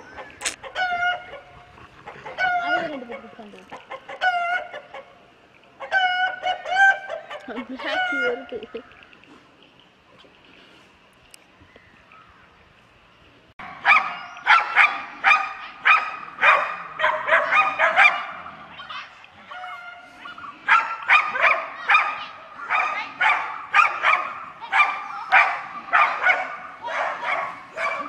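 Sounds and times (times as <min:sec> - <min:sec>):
dogs yelping: 0:00.0 - 0:05.1, 0:05.8 - 0:08.8, 0:13.6 - 0:28.0
dogs barking: 0:00.2 - 0:05.1, 0:13.6 - 0:28.0.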